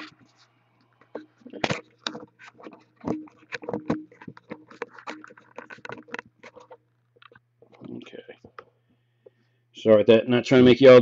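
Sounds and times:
camera handling knocks and scrapes: 0:01.1 - 0:08.6.

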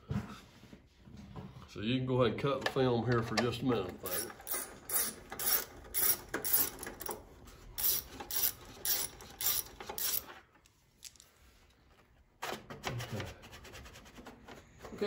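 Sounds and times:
ratchet wrench clicking: 0:04.1 - 0:07.2, 0:07.8 - 0:10.3.

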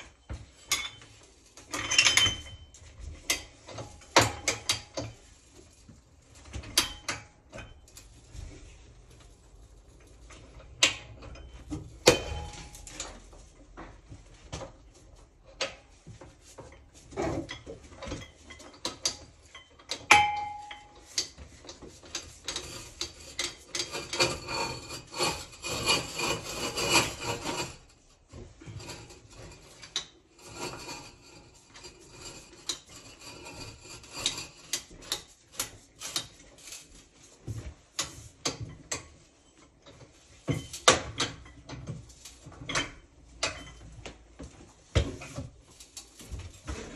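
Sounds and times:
metal clanks: 0:10.7 - 0:13.3, 0:17.2 - 0:21.4
scraping: 0:20.5 - 0:39.4.

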